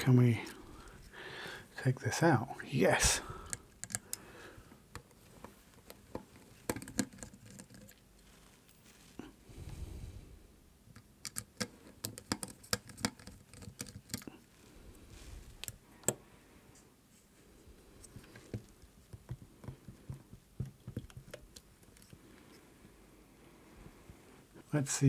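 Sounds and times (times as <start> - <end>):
small clicks and taps on plastic: 3.4 - 4.2, 4.9 - 8.0, 10.9 - 14.3, 18.0 - 22.2.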